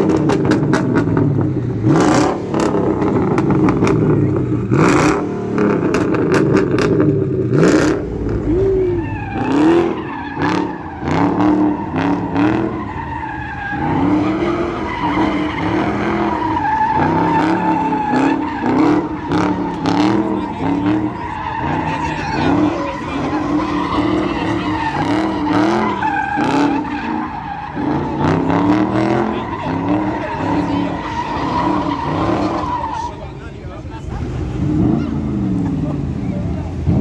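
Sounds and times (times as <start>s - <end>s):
car engine revving: 0.0s - 37.0s
tyres squealing: 8.4s - 33.6s.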